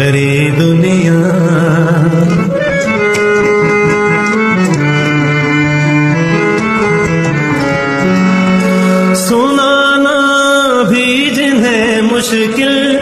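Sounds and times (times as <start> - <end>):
instrumental film song music: 0.0 - 13.0.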